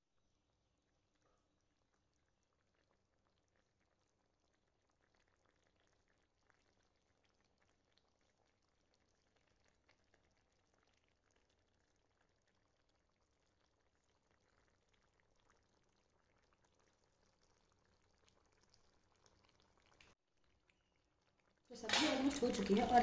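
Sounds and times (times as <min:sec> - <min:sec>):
curry simmering with small pops: 0:00.0 - 0:23.0.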